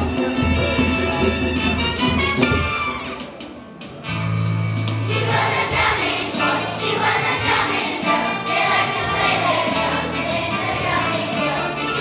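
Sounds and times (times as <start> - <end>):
instrumental accompaniment: 0.0 - 12.0
children's choir singing: 5.0 - 12.0.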